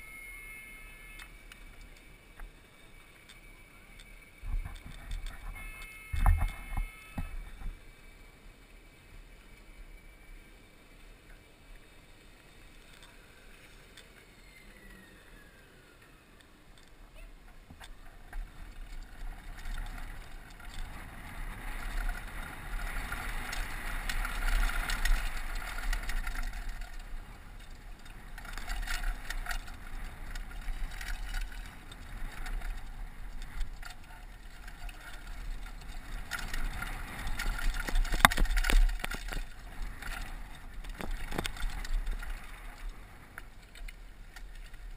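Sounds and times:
bike chain and frame rattling: 0.0 - 8.5, 17.8 - 44.9
bike tyres crunching on dirt: 17.7 - 44.9.

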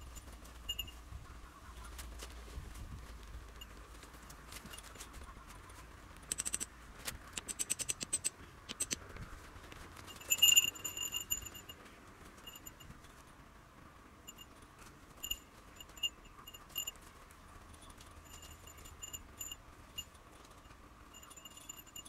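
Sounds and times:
ringing metal pings: 0.0 - 1.0, 10.1 - 11.8, 12.4 - 12.9, 14.3 - 14.5, 15.2 - 16.9, 18.3 - 22.0.

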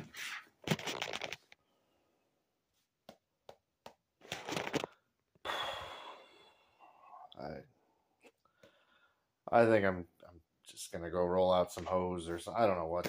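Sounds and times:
rustling and handling noise: 0.0 - 1.6, 2.6 - 5.0.

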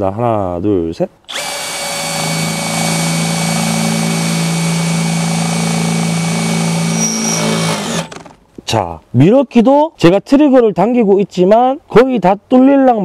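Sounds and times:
drill whining into steel: 1.3 - 8.4
high squeal: 6.6 - 8.3.

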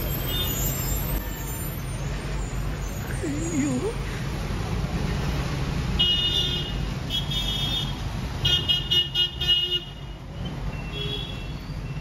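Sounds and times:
rumble of passing vehicles: 0.0 - 12.0
vehicle horn honking: 6.0 - 10.1.

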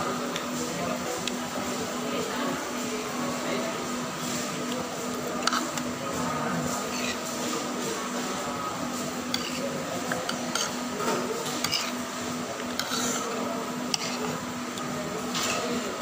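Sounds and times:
metal fork scraping a plate: 6.8 - 7.3, 9.3 - 9.8, 11.4 - 12.0, 12.8 - 13.3, 13.9 - 14.4.

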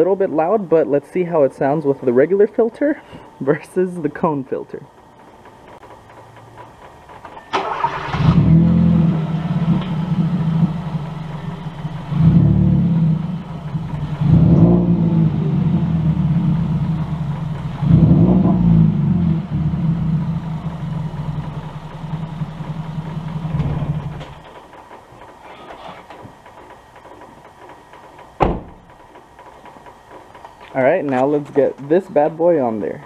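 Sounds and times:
car engine idling and revving: 5.8 - 24.6
car engine starting: 6.5 - 24.8.

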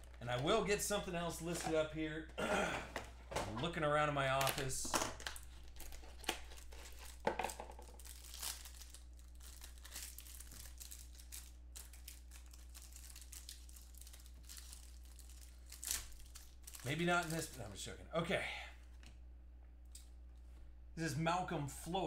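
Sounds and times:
plastic wrapper crinkling: 0.0 - 1.0, 4.4 - 17.8
low steady hum: 0.0 - 22.0.

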